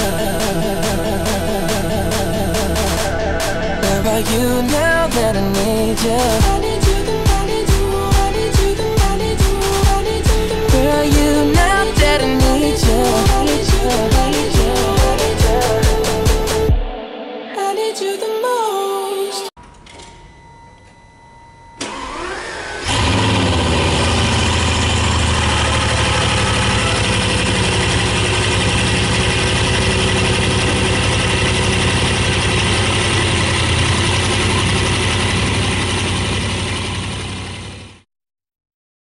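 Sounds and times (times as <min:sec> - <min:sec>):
car engine idling: 0:00.0 - 0:16.7, 0:21.8 - 0:38.0
starter motor whine: 0:19.6 - 0:38.0.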